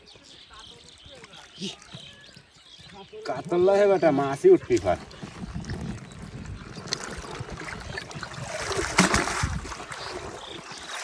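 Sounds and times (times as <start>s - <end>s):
net splashing in water: 6.8s - 11.0s.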